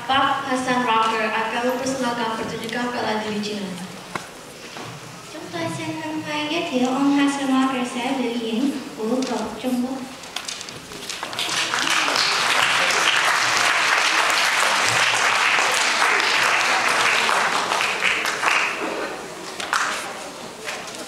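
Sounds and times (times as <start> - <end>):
audience applauding: 11.0 - 20.2.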